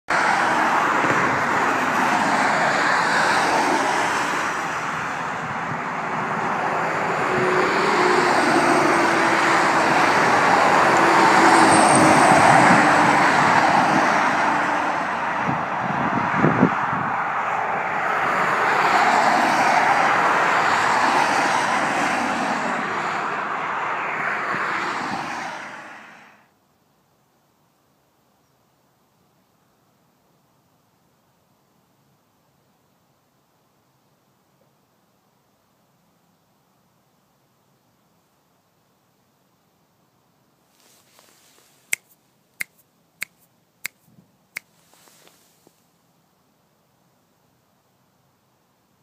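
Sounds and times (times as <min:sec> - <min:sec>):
road traffic passing: 0:00.0 - 0:26.5, 0:40.7 - 0:46.2.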